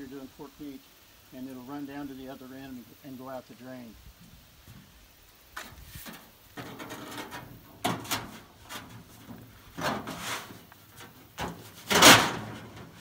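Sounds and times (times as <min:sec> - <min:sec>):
metal plate scraping inside tank: 0:06.0 - 0:13.0.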